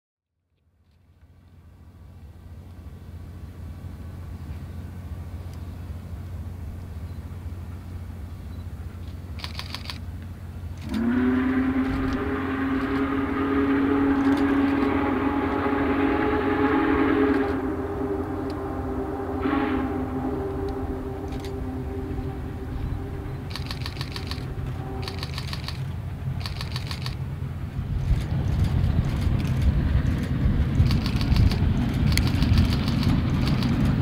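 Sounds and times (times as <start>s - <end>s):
low steady rumble: 0.4s - 34.0s
deep steam whistle chord: 10.8s - 26.3s.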